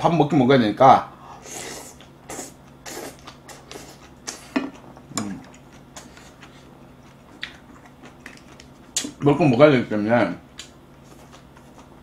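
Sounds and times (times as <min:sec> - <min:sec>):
wet chewing smacks: 0:05.2 - 0:09.2.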